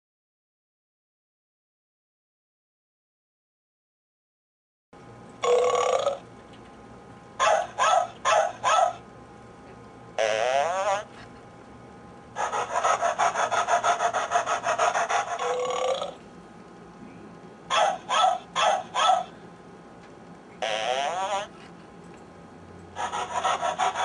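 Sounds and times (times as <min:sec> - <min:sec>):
toy dog burp: 0:05.4 - 0:06.2, 0:10.2 - 0:11.1, 0:15.4 - 0:16.2, 0:20.6 - 0:21.5
toy dog barking: 0:07.4 - 0:09.0, 0:10.2 - 0:11.1, 0:12.4 - 0:16.2, 0:17.7 - 0:19.3, 0:20.6 - 0:21.5, 0:23.0 - 0:24.0
rhythmic scratching rasp: 0:12.4 - 0:16.0, 0:23.0 - 0:24.0.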